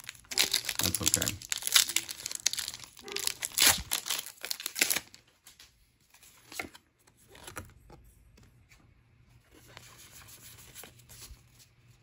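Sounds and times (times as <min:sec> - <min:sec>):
foil wrapper crinkling and tearing: 0:00.0 - 0:05.2.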